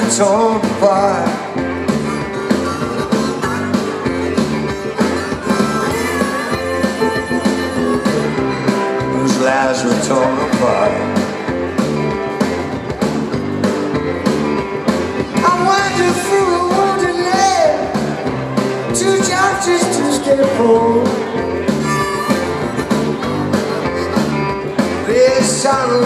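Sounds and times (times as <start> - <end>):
live rock band playing: 0.0 - 26.0
harmonica solo: 1.5 - 10.3, 18.3 - 26.0.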